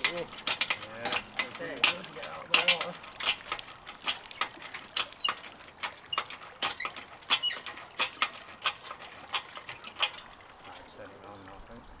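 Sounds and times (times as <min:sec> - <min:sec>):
winch ratchet clicking: 0:00.0 - 0:10.8
short high squeaks: 0:06.1 - 0:08.2.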